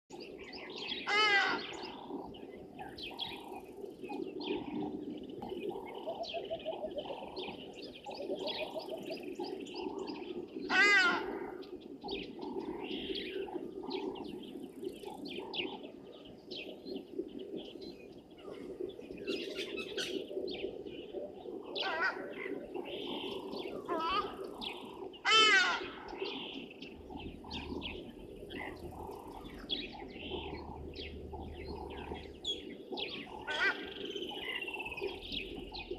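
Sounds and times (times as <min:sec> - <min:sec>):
bird calls and chirps: 0:00.1 - 0:35.9
loud drawn-out bird calls: 0:00.9 - 0:02.0, 0:10.6 - 0:11.6, 0:21.8 - 0:22.6, 0:25.2 - 0:26.7, 0:33.2 - 0:35.6.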